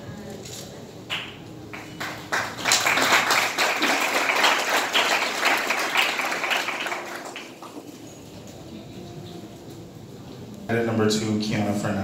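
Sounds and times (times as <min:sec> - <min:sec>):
audience applauding: 0:01.1 - 0:08.3.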